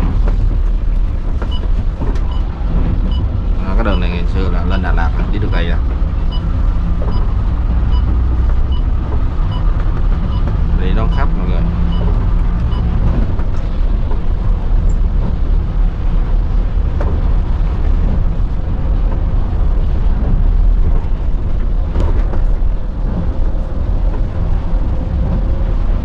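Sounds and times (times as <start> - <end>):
bus engine and tyres rumbling: 0.0 - 26.0.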